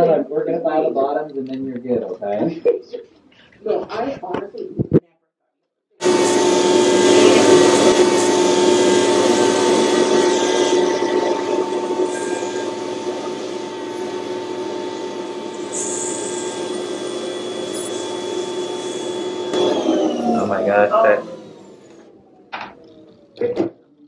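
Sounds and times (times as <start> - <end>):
rotary drill filing skin: 6.0 - 22.0.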